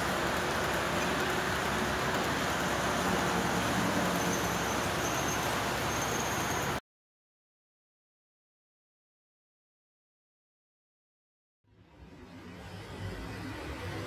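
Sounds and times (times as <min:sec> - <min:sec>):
model train wheels on rails: 0:00.0 - 0:06.8.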